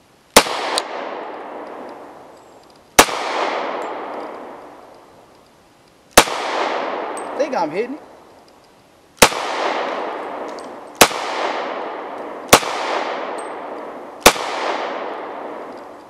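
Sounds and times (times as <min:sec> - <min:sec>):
pistol shots with long echo: 0:00.4 - 0:02.2, 0:03.0 - 0:04.9, 0:06.2 - 0:07.4, 0:09.2 - 0:16.0.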